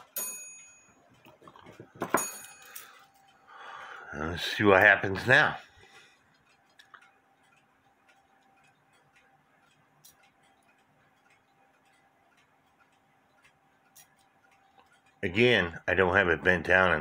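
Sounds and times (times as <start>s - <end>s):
clock movement ticking: 0.0s - 17.0s.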